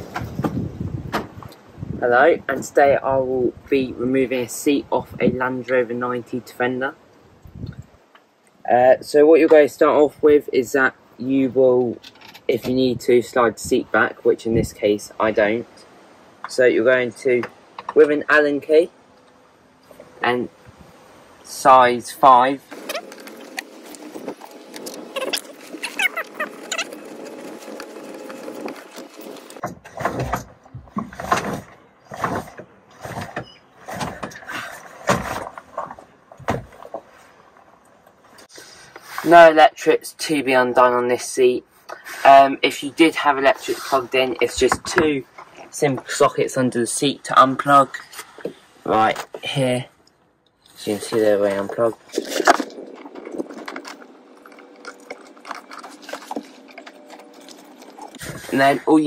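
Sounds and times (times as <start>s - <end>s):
light scrapes and clicks: 50.6s - 58.8s.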